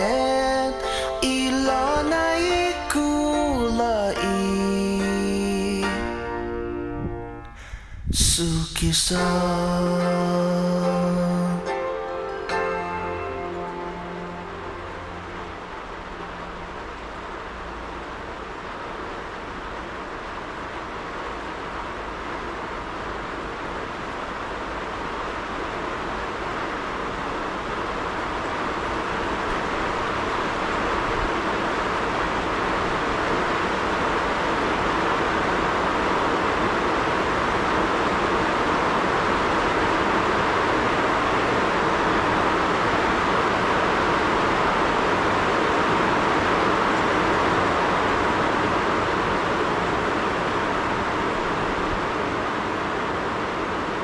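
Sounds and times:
car road and wind noise: 14.4s - 54.0s.

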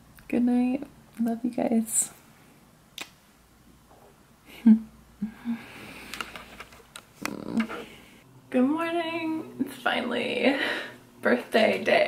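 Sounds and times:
kiss smack: 3.0s - 3.2s
woman breathing and sighing: 4.4s - 6.4s, 10.4s - 11.1s
woman humming: 4.6s - 5.8s, 7.2s - 7.8s.

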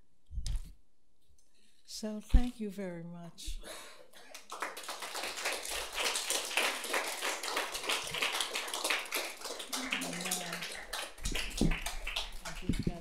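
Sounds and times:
audience applauding: 4.2s - 13.0s
person speaking: 12.5s - 13.0s.

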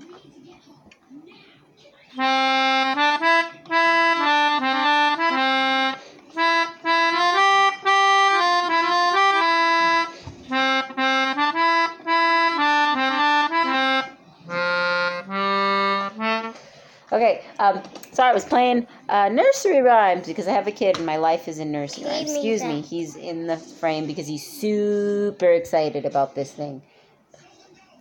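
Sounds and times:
melodica playing a simple melody: 2.2s - 16.6s.

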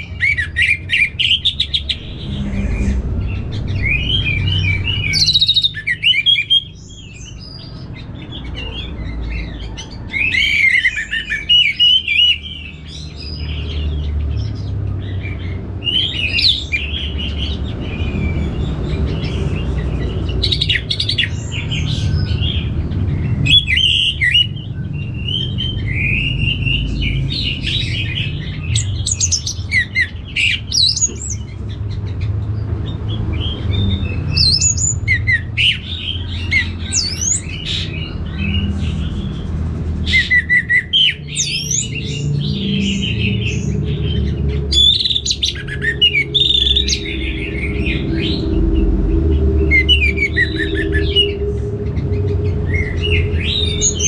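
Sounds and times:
bird singing chirps and whistles: 0.0s - 32.2s, 33.1s - 39.3s, 40.0s - 54.0s
low rumble: 1.4s - 5.7s, 41.5s - 54.0s.

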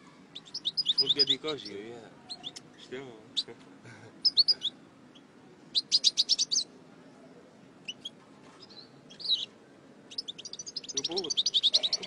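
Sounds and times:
goldfinch chirping: 0.3s - 2.8s, 4.2s - 6.7s, 7.8s - 9.5s, 10.1s - 12.0s.

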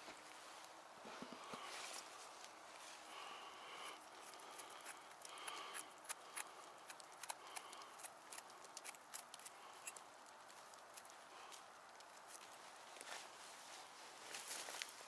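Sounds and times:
footsteps through wet undergrowth: 11.5s - 15.0s
twigs cracking underfoot: 14.3s - 15.0s.

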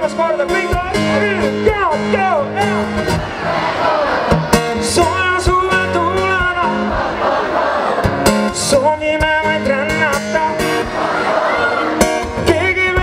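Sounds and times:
faint crowd: 0.0s - 13.0s
strummed acoustic guitar: 0.0s - 13.0s
male singer: 4.8s - 7.0s, 8.5s - 10.7s, 12.2s - 13.0s.

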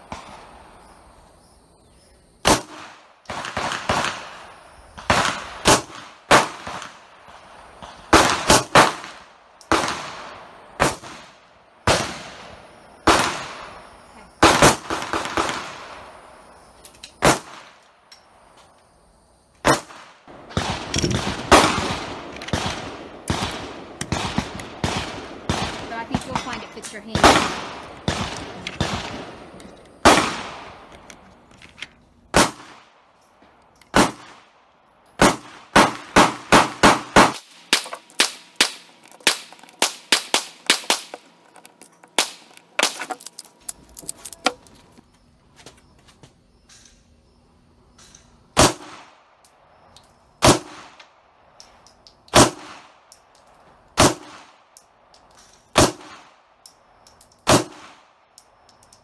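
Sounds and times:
gunshots: 2.4s - 4.4s, 5.0s - 7.1s, 7.8s - 13.7s, 14.4s - 16.0s, 17.2s - 17.8s, 19.6s - 30.8s, 32.3s - 33.0s, 33.9s - 34.5s, 35.2s - 41.3s, 48.6s - 49.2s, 50.4s - 51.0s, 52.3s - 52.9s, 54.0s - 54.6s, 55.7s - 56.3s, 57.5s - 58.0s
pistol shots: 2.4s - 4.4s, 5.0s - 7.0s, 7.9s - 13.7s, 14.4s - 15.9s, 17.2s - 17.8s, 19.6s - 30.9s, 32.3s - 33.0s, 33.9s - 34.5s, 35.2s - 41.4s, 48.6s - 49.2s, 50.4s - 51.0s, 52.3s - 53.0s, 54.0s - 54.6s, 55.7s - 56.4s, 57.4s - 58.1s.

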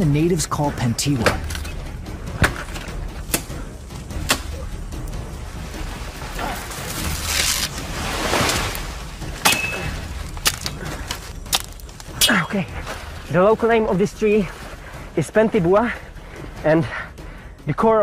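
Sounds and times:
machete chopping vegetation: 2.4s - 3.6s, 4.2s - 4.6s, 9.4s - 12.1s
rustling swish of leaves: 5.3s - 12.1s.

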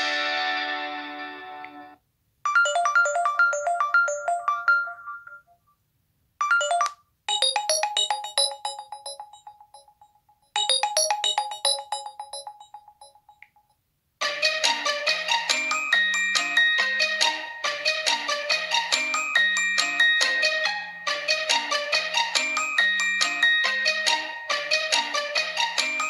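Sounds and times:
held ringtone chord: 2.5s - 5.6s, 6.4s - 13.4s
bright ringtone melodies: 2.5s - 5.7s, 6.4s - 13.7s, 15.5s - 26.0s.

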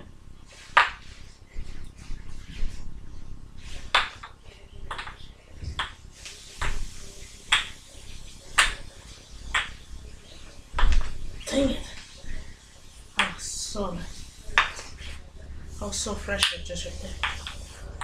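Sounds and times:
wooden ball clacking on cups: 0.7s - 1.1s, 3.8s - 6.0s, 7.5s - 7.8s, 8.5s - 8.9s, 9.5s - 9.8s, 10.7s - 11.2s, 14.5s - 15.2s, 16.4s - 18.0s.

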